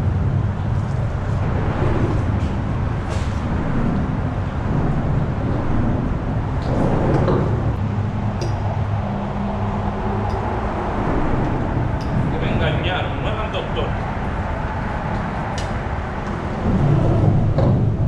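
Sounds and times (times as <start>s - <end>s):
traffic rumble overhead: 0.0s - 18.0s.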